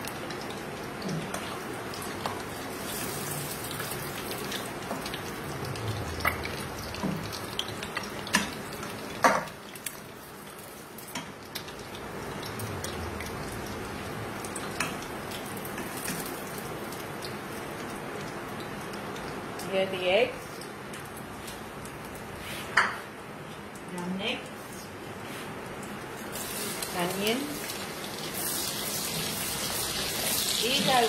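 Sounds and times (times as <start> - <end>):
oil sizzling: 0.0 - 22.8, 25.8 - 31.0.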